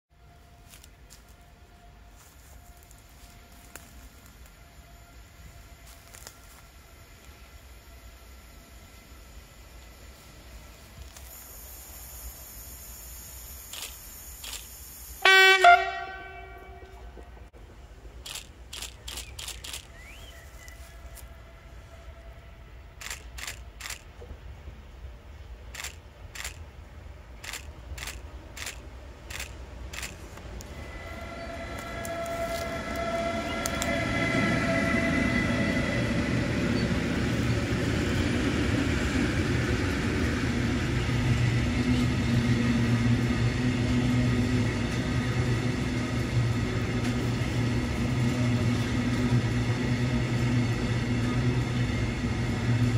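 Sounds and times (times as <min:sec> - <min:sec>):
train horn blast: 0:00.1 - 0:08.3, 0:15.2 - 0:17.5, 0:20.2 - 0:23.0, 0:30.6 - 0:36.8
train wheels rumbling on rails: 0:00.1 - 0:52.9
sharp clicks: 0:18.2 - 0:20.0, 0:27.4 - 0:30.2.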